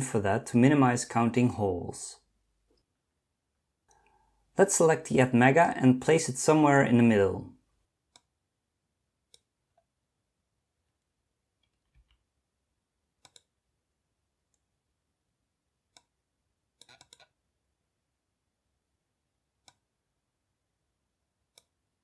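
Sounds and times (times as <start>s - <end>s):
computer mouse clicks: 8.1s - 8.3s, 9.3s - 9.9s, 13.2s - 13.6s, 15.9s - 16.2s, 16.8s - 17.4s, 19.6s - 19.9s, 21.5s - 21.8s.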